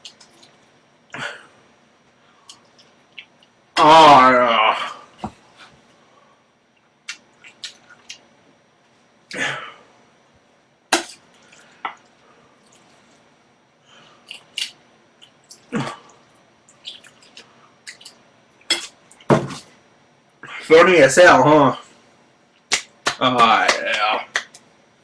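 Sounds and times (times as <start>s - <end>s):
wet chewing: 14.2s - 19.3s.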